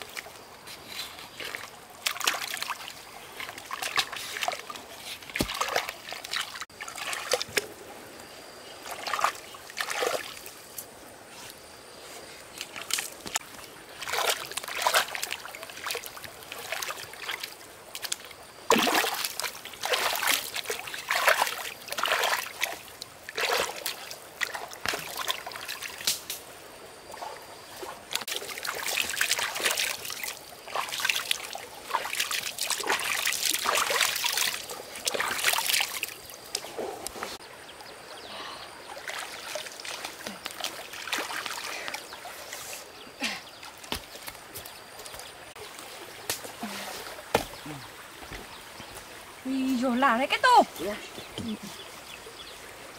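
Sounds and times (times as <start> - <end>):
water sloshing and splashing: 0.0 - 11.1, 12.1 - 37.6, 38.7 - 52.9
hands splashing water: 1.3 - 7.7, 12.6 - 26.3, 28.1 - 36.7, 39.0 - 42.1.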